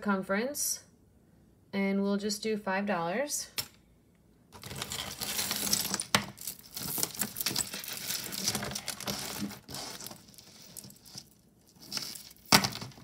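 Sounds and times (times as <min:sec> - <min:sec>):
rustling: 0:04.5 - 0:13.0
jewelry pieces clinking: 0:04.6 - 0:12.9.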